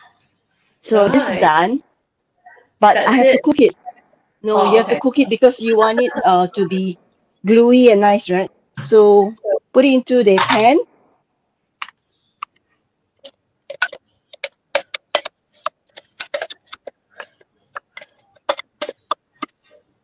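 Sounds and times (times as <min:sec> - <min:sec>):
spatula scraping and tapping in a jug: 0:13.2 - 0:20.0.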